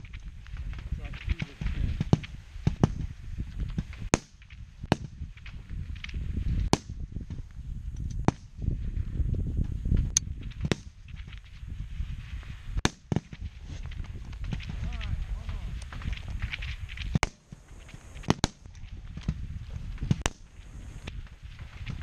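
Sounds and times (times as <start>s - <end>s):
steady low rumble: 13.4s - 22.0s
rifle shots cracking: 17.1s - 19.3s.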